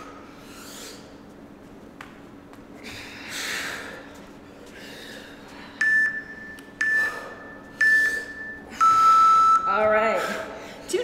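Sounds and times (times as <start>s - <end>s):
high countdown beeps: 5.8s - 10.1s.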